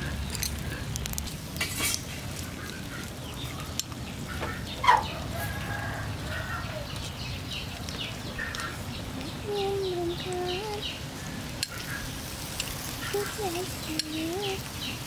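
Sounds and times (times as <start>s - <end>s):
chickens clucking: 2.4s - 14.8s
loud chicken call: 4.3s - 6.9s.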